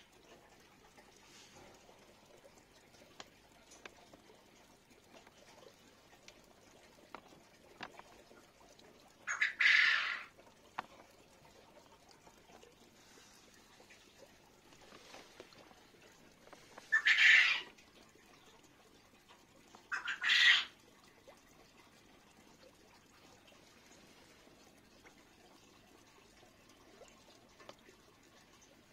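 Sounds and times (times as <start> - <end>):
bird calling: 9.3 - 10.3, 16.9 - 17.7.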